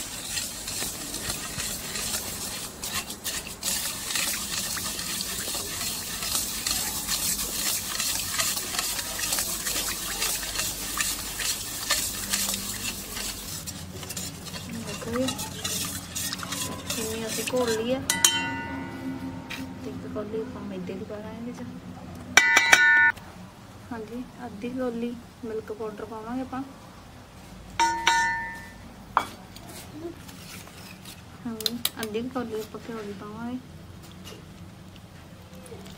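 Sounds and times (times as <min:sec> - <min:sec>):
spoon scraping a steel bowl: 0:00.0 - 0:19.9, 0:27.8 - 0:28.8
sharp ringing clink: 0:18.1 - 0:19.1.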